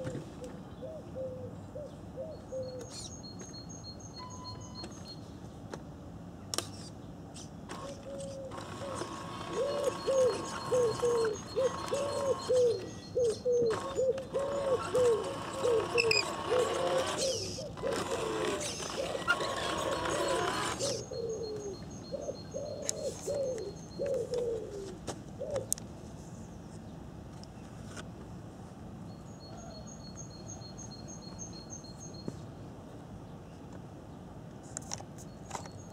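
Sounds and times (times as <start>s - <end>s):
pigeon cooing: 0.8s - 2.8s, 7.8s - 25.7s
electric motor whine: 8.5s - 12.7s, 13.7s - 21.1s.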